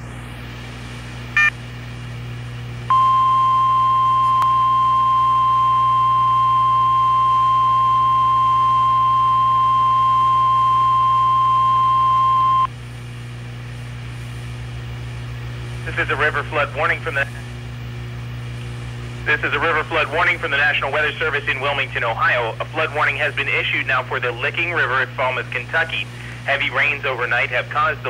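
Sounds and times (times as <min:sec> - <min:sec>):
receiver low hum and hiss: 0:00.0 - 0:28.0
steady alarm tone: 0:02.9 - 0:12.7.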